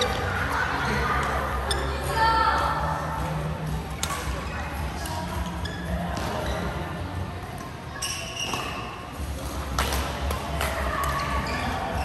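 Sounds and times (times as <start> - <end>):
rackets hitting shuttlecock: 9.7 - 11.2.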